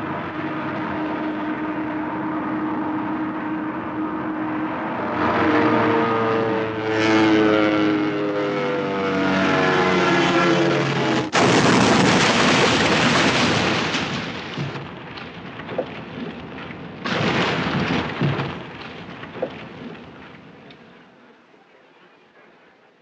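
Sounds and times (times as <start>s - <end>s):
loud explosion blast: 11.1s - 15.8s, 16.9s - 20.1s
rush of flames: 11.3s - 20.6s
fire crackling with pops: 11.3s - 20.8s.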